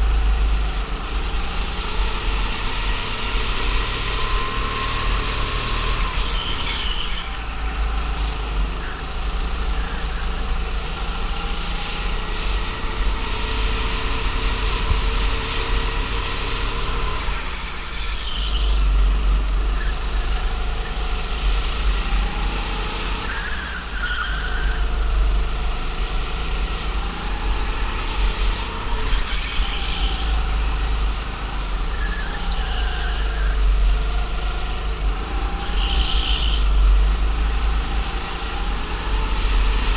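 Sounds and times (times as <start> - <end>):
go-kart engine running: 0.0 - 39.9
tyres squealing: 6.1 - 7.6.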